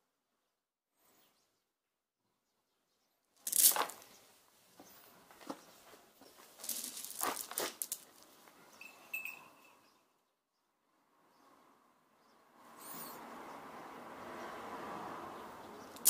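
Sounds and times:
pellets clattering into tub: 3.5 - 4.0, 6.6 - 8.1.

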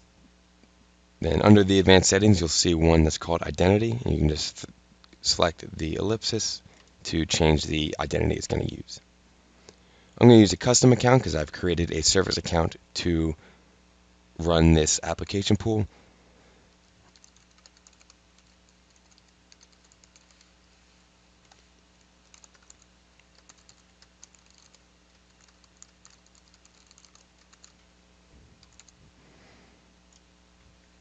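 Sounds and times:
computer keyboard typing: 17.1 - 20.5, 21.4 - 27.8, 28.6 - 29.0.

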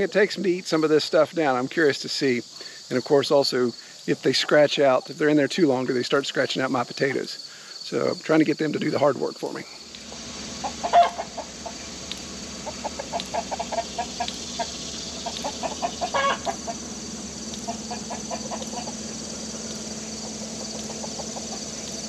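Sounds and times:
chickens clucking: 9.8 - 22.0.

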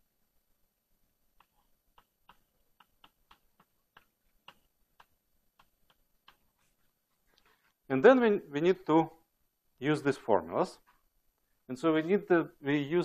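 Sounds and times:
chalk tapping on blackboard: 1.3 - 6.8.

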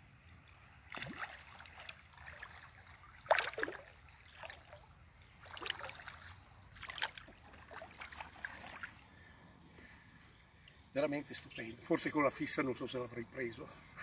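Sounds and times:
fish splashing in water: 0.8 - 9.1.

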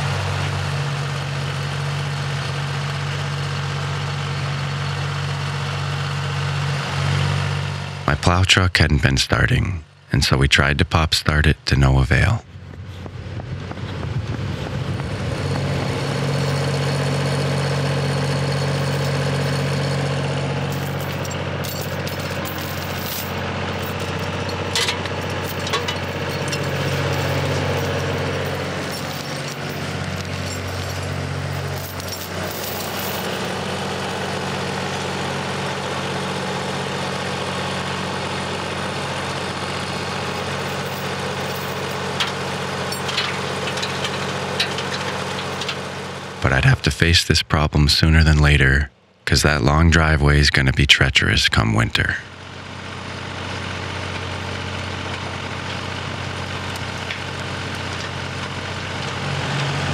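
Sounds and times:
tractor engine running: 0.0 - 8.4, 12.5 - 59.9
tow chain clinking: 16.0 - 33.8, 40.2 - 46.2.

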